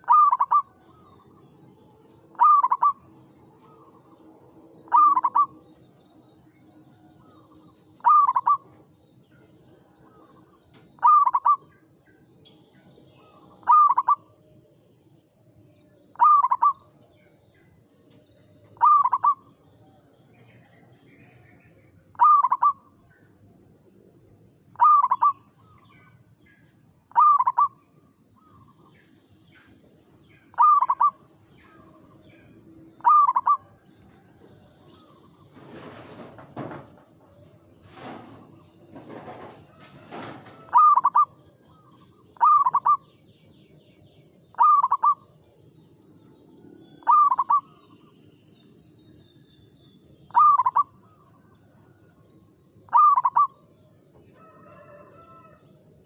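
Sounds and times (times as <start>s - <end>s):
dove cooing: 0.0s - 1.4s, 2.3s - 4.2s, 4.8s - 5.7s, 7.3s - 8.8s, 11.0s - 11.7s, 13.3s - 14.3s, 16.1s - 16.9s, 18.8s - 19.6s, 22.1s - 22.9s, 24.7s - 25.8s, 27.1s - 27.8s, 30.5s - 32.2s, 32.8s - 33.8s, 39.2s - 43.1s, 44.5s - 45.3s, 47.0s - 47.8s, 50.3s - 50.9s, 52.9s - 53.6s.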